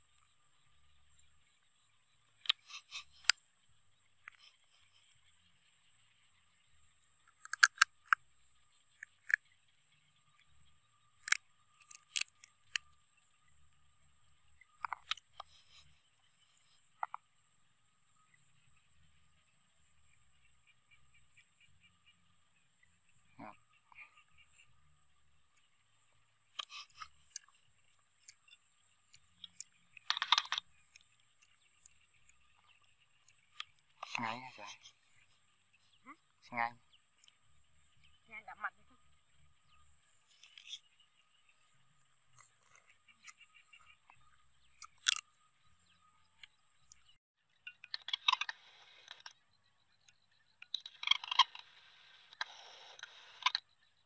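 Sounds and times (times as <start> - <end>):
crab shell cracking and chewing: 7.3 - 8.2, 9.0 - 9.4, 11.2 - 12.8, 29.1 - 31.5, 44.8 - 45.2
crab shell cracking: 7.4 - 8.2, 11.2 - 12.8, 44.8 - 45.2.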